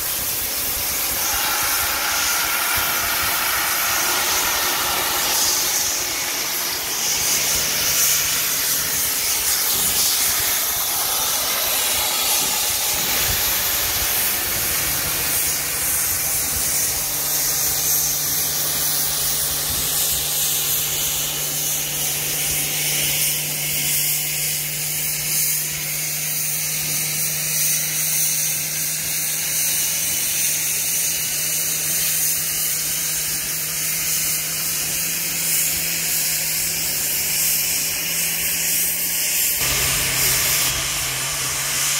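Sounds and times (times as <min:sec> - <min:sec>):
steady low hum: 0:00.0 - 0:18.6
steam locomotive hissing steam: 0:00.0 - 0:41.9.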